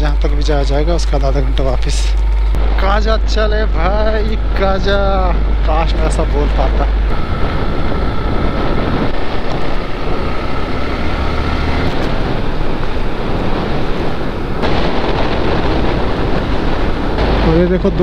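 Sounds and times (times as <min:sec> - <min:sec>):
motorcycle engine running: 0:00.0 - 0:18.0
wind rushing over microphone: 0:00.0 - 0:18.0.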